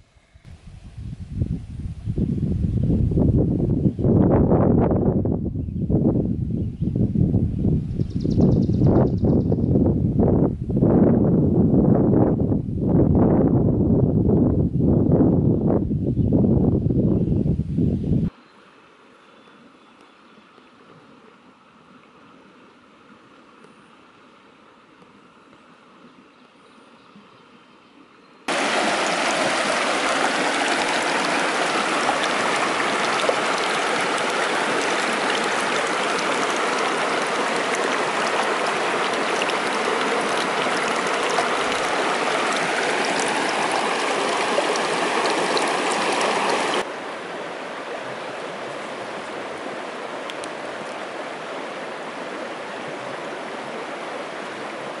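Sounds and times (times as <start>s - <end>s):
stream water rushing: 28.5s - 55.0s.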